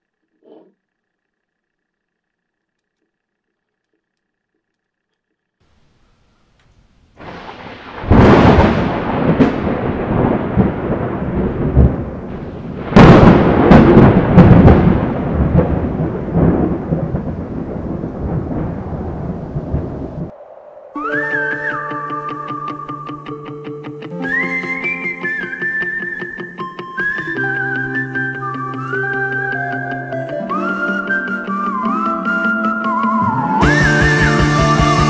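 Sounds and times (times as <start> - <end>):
thunder rumbling: 7.1 - 23.1.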